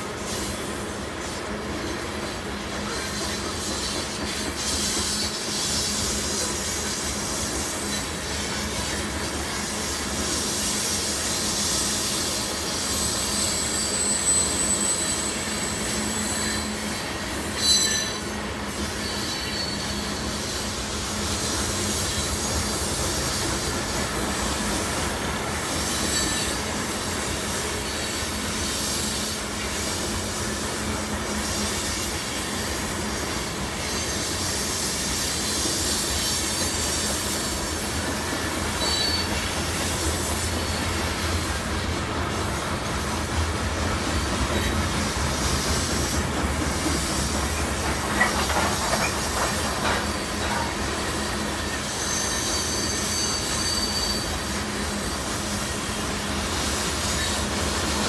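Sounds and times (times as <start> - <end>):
train cars rumbling past: 0.0 - 58.0
high-pitched wheel squeal: 12.7 - 20.8, 25.8 - 26.7, 33.8 - 43.2, 48.2 - 54.6.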